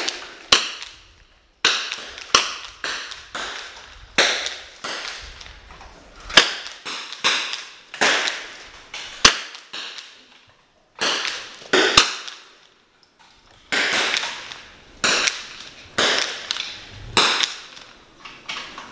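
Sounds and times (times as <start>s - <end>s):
rifle shots echoing: 1.6s - 5.5s, 6.3s - 10.2s, 11.0s - 12.6s, 13.6s - 17.9s.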